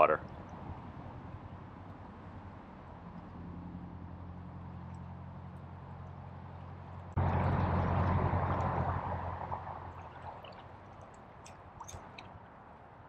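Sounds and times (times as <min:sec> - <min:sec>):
rushing stream water: 0:04.4 - 0:13.0.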